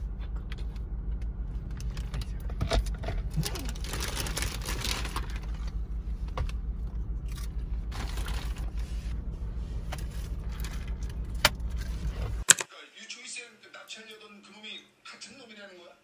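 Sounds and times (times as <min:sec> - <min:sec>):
car hum: 0:00.0 - 0:12.4
plastic bag rustling: 0:03.3 - 0:05.7, 0:07.9 - 0:09.1.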